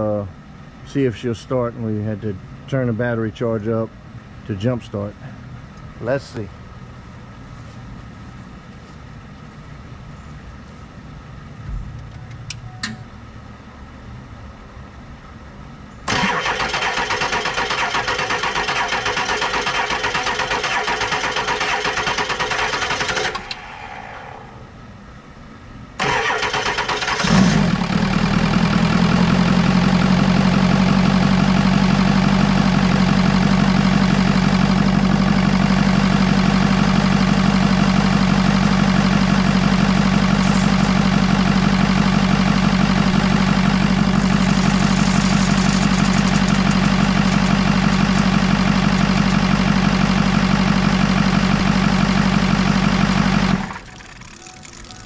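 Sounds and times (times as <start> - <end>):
starter cranking diesel engine: 16.1 - 23.9, 26.0 - 55.0
diesel engine idling: 16.1 - 25.0, 26.0 - 55.0.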